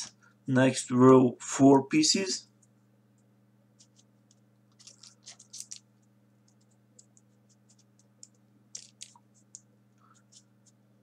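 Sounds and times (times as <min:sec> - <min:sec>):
low steady hum: 0:00.0 - 0:11.0
paper clicks and scratches: 0:03.8 - 0:10.8.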